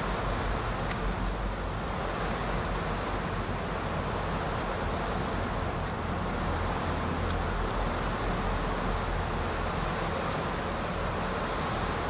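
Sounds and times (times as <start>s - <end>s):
faint high ticks: 7.2s - 7.5s.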